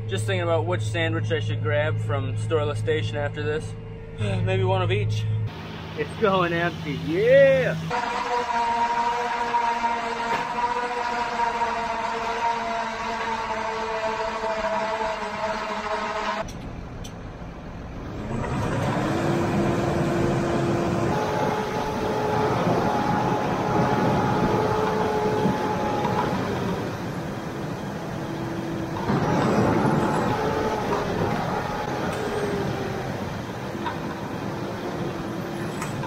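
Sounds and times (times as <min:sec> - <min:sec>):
drivetrain whine: 0:00.0 - 0:36.0
tractor engine under load: 0:16.4 - 0:36.0.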